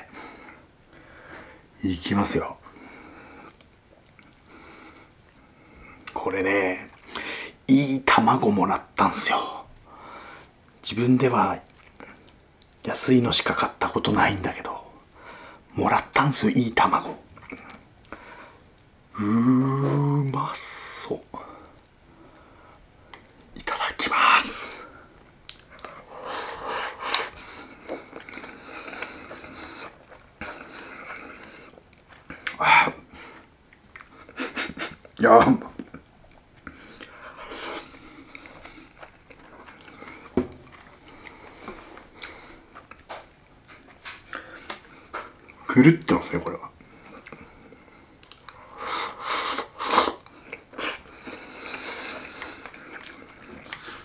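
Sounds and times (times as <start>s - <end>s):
person chewing food: 3.4s - 6.2s, 11.6s - 12.8s, 17.3s - 19.0s, 24.9s - 35.2s, 35.8s - 45.6s, 46.8s - 54.0s.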